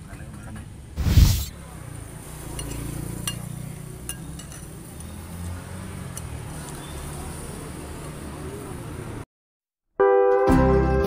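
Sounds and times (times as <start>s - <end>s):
metal spoon clinking ceramic bowl: 2.6s - 3.5s.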